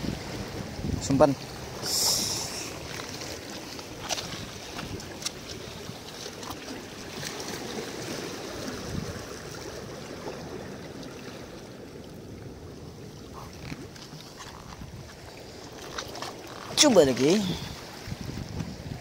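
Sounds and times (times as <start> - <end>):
wind buffeting microphone: 0.0 - 1.9, 8.6 - 9.6, 12.4 - 15.6, 16.6 - 19.0
water lapping against rocks: 0.0 - 19.0.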